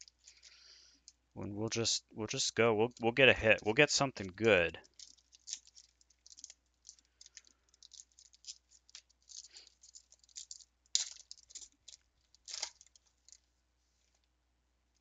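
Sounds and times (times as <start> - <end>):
cards being handled: 4.4 - 13.4
wrapper tearing and crinkling: 4.8 - 13.4.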